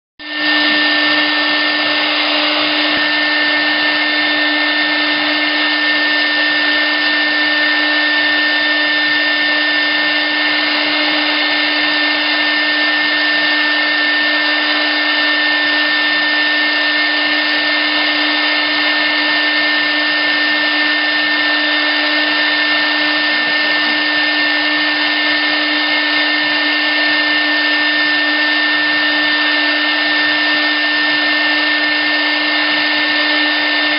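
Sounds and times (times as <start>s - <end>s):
router spindle whining: 0.2s - 33.9s
hiss of cutting acrylic: 16.9s - 33.9s.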